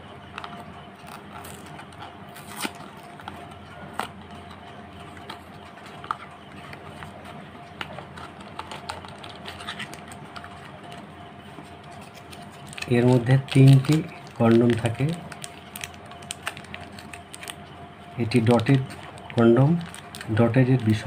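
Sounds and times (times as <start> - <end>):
cardboard box crackling and tearing: 1.0 - 3.3, 12.0 - 17.6.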